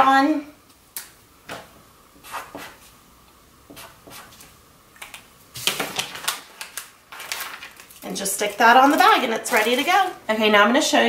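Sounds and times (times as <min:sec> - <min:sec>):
paper label rustling: 0:05.0 - 0:10.2.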